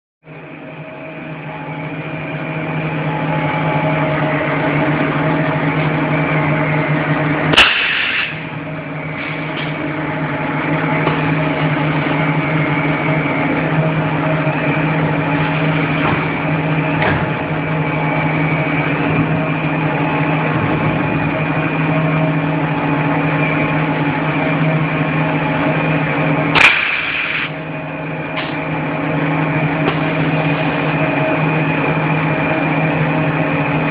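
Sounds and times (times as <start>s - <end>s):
machine hum: 0.2s - 33.9s
sharp clack: 7.5s - 8.4s.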